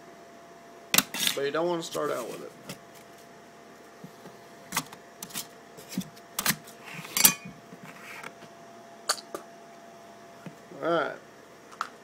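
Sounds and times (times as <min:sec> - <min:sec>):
metal lids clicking and clinking: 0:07.1 - 0:07.5.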